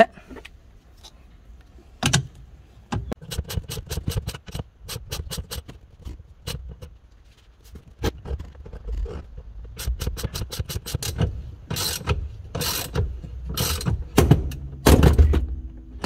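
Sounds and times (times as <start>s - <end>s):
ratchet wrench clicking: 9.8s - 13.9s.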